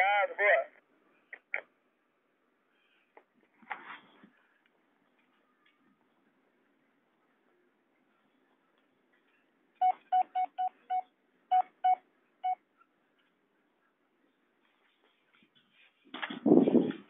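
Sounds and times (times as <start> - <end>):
short keypad beeps: 9.8 - 12.6.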